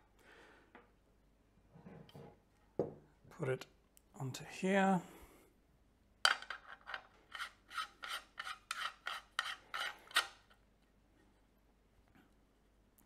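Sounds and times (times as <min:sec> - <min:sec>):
metal threads rasping: 0:06.8 - 0:10.4.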